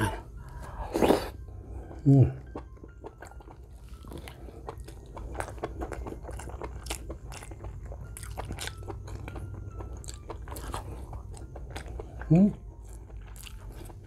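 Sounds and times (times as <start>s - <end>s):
person chewing: 0.0s - 14.0s.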